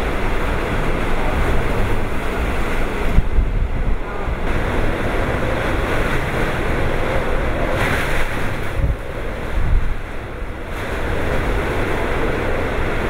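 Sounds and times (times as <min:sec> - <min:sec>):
wind buffeting microphone: 0:00.0 - 0:13.0
wind-driven heavy rain: 0:00.0 - 0:13.0.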